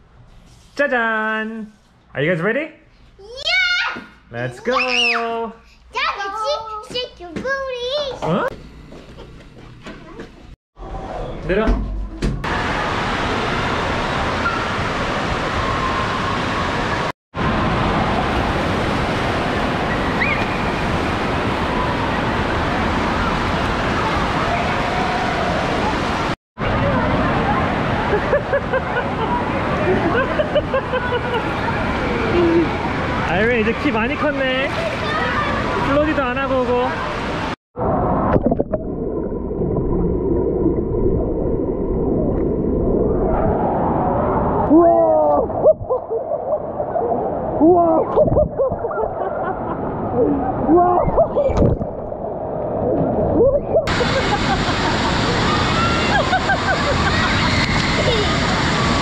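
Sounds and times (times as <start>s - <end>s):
rushing and splashing water: 12.4s - 44.5s, 49.8s - 59.0s.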